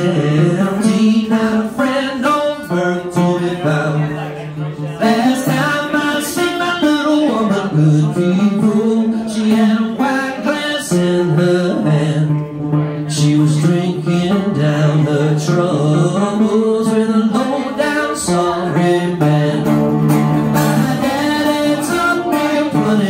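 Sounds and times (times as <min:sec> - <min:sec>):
man singing: 0:00.0 - 0:23.0
string band playing: 0:00.0 - 0:23.0.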